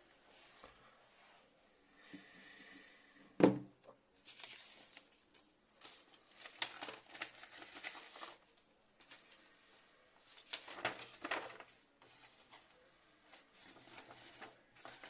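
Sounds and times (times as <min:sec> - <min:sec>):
crinkling and rustling: 0:04.2 - 0:15.0.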